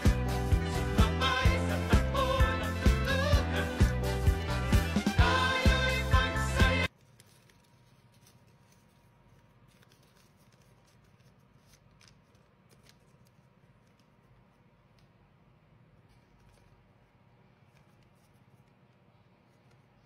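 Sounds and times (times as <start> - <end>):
paper rustling being folded: 6.9 - 15.3, 15.9 - 20.0.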